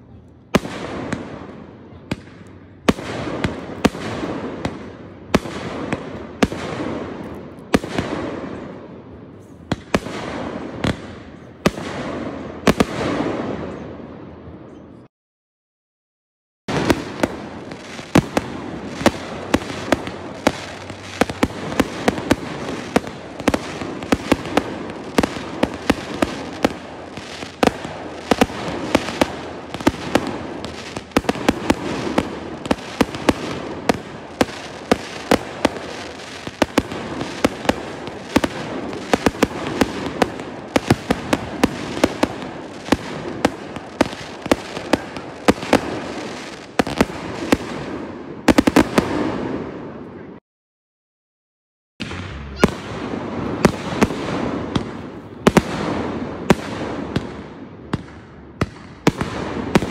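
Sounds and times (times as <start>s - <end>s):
fireworks bangs and pops: 0.5s - 13.9s, 16.7s - 50.0s, 52.0s - 59.9s
fireworks crackle: 16.7s - 47.8s, 58.0s - 59.9s.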